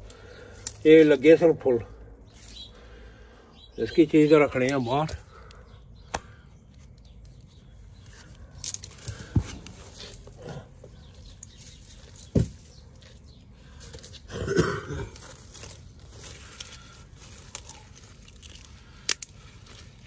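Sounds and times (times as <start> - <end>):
dry leaves rustling and crackling: 11.0 - 20.0
dull thumps: 12.2 - 12.7.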